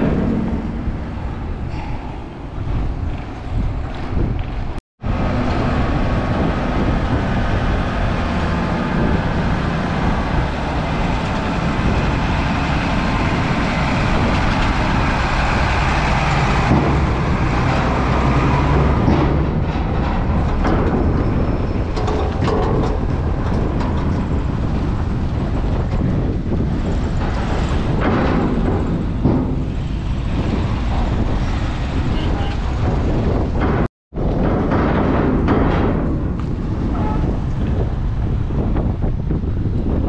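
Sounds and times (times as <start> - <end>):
knocks from metal plates: 0.0 - 2.1, 12.9 - 24.9, 25.5 - 37.9
cars crossing a ramp: 0.0 - 40.0
heavy lorry engine: 0.0 - 40.0.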